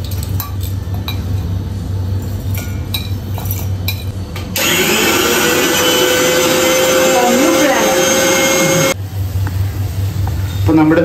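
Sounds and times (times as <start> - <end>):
mixer grinder motor whining: 4.6 - 9.0.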